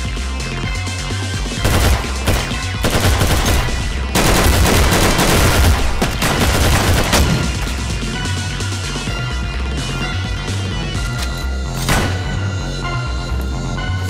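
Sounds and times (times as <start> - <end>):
rapid automatic gunfire: 1.6 - 7.6.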